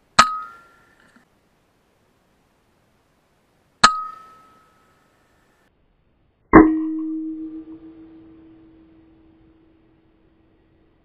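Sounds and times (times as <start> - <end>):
metallic ringing tone: 3.8 - 5.2, 6.6 - 10.8.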